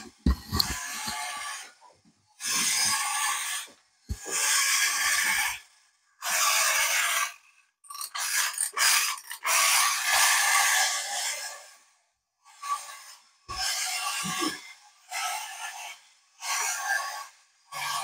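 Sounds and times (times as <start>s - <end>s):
wind-up toy mechanism rasping: 6.3s - 11.4s.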